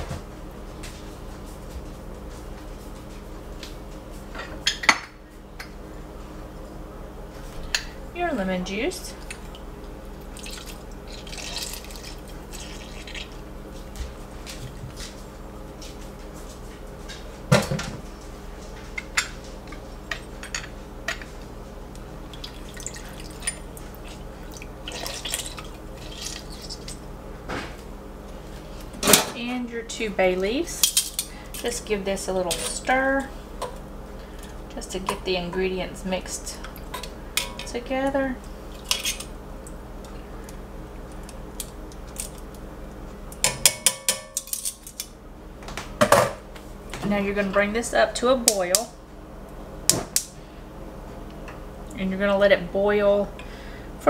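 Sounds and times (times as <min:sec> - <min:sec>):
juice dripping into broth: 0:22.2 - 0:26.9.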